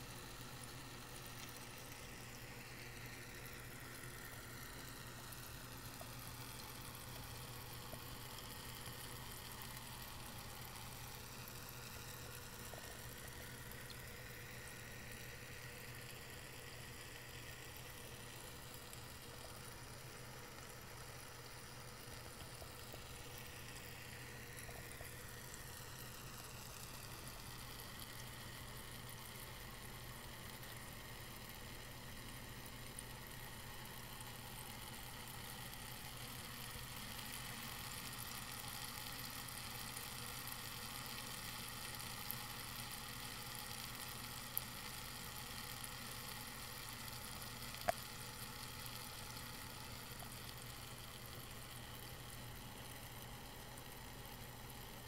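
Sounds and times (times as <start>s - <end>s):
small pump humming: 0.0s - 55.0s.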